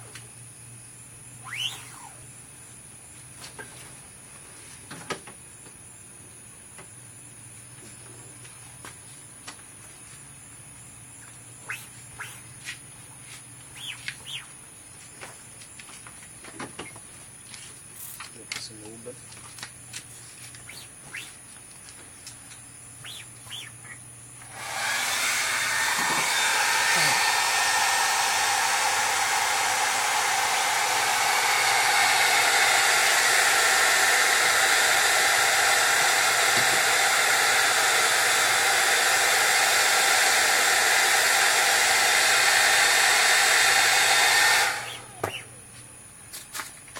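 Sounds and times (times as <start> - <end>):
hot-air dryer blowing: 24.4 - 45.5.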